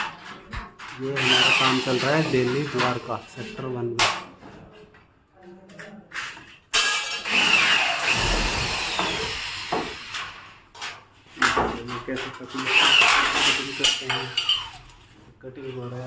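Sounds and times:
power tool whirring: 1.2s - 2.4s, 7.3s - 10.6s.

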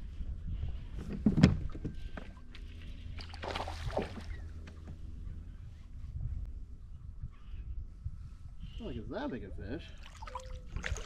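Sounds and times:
low wind rumble: 0.0s - 11.0s
water splashing: 3.2s - 4.3s, 10.0s - 11.0s.

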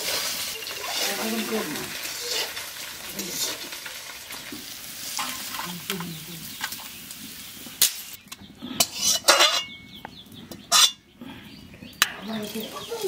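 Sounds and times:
metal spatula scraping pan: 0.0s - 3.7s, 8.8s - 9.8s, 10.7s - 11.0s
food sizzling in hot oil: 0.0s - 8.2s.

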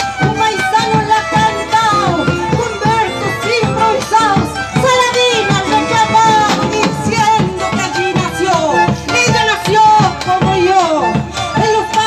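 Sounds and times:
bass drums beating in rhythm: 0.0s - 12.0s
drum kit: 0.4s - 11.6s
strummed acoustic guitar: 3.0s - 8.0s
gliding melody: 3.1s - 8.7s.

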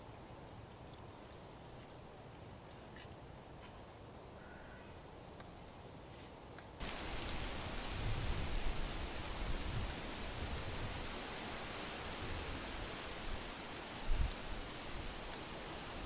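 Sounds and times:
wind rushing through treetops: 0.0s - 16.0s
leaves rustling: 5.6s - 16.0s
gusts buffeting microphone: 6.8s - 11.1s.

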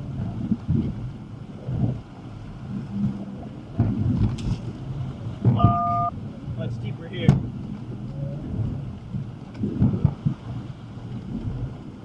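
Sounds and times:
low rumble: 0.0s - 12.0s
water surging against vehicle: 0.0s - 12.0s
two-tone electronic beep: 5.6s - 6.1s.

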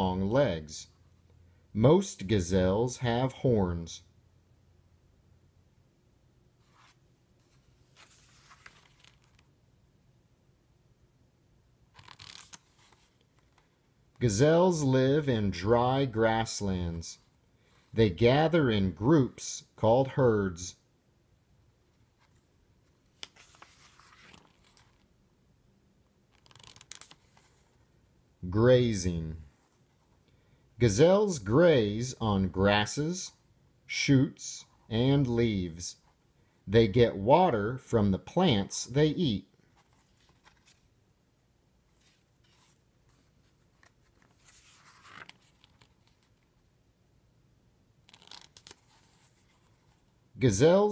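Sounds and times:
paper page turning rustle: 6.6s - 9.5s, 11.9s - 13.7s, 22.1s - 25.1s, 26.3s - 27.8s, 39.6s - 41.0s, 41.9s - 46.6s, 48.0s - 50.1s.

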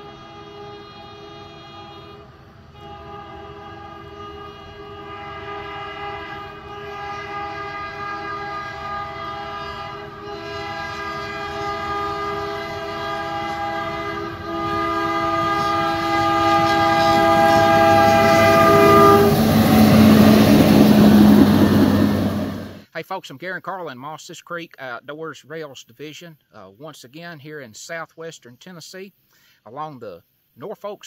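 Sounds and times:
air horn chord: 0.0s - 22.8s.

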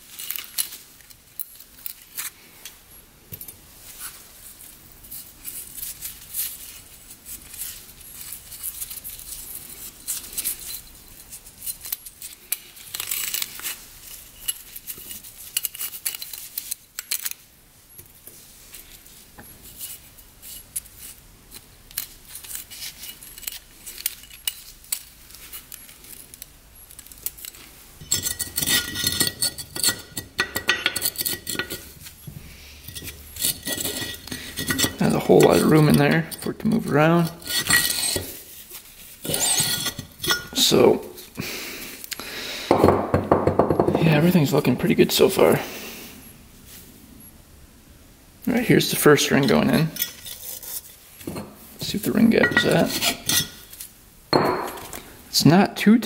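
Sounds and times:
small metal clicks and scrapes: 0.1s - 2.8s, 5.1s - 17.5s, 18.7s - 40.8s, 49.3s - 51.0s.

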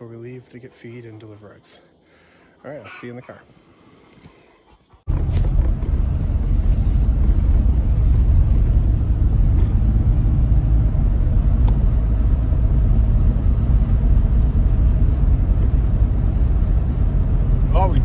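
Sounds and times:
car engine and tyre noise: 4.0s - 18.0s.

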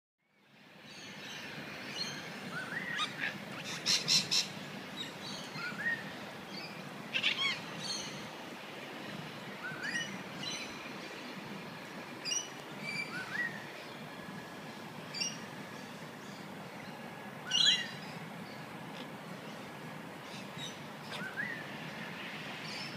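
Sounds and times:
outdoor background noise: 0.2s - 22.9s
birds chirping and whistling: 1.9s - 8.3s, 9.6s - 10.8s, 12.2s - 14.1s, 15.1s - 18.6s, 20.3s - 21.8s.

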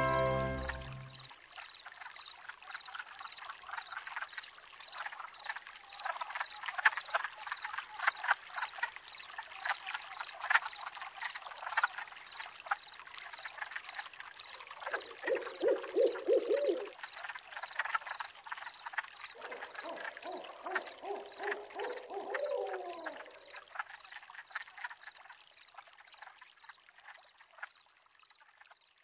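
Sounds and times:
faint high repeating note: 0.0s - 1.2s
frogs croaking: 0.1s - 29.0s.

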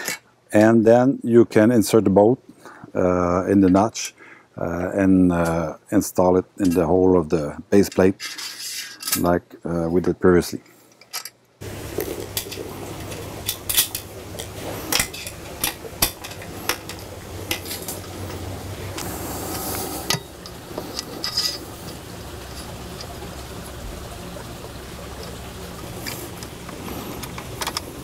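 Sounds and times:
metal bolts clinking: 7.9s - 9.3s, 12.2s - 18.4s, 20.0s - 23.2s
steady low hum: 11.6s - 28.0s.

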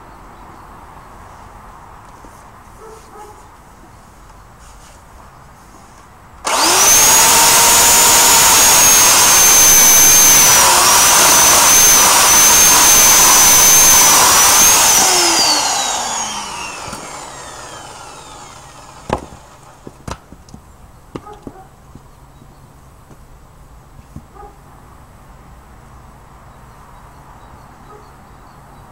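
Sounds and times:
electric chainsaw whining: 6.4s - 20.0s.

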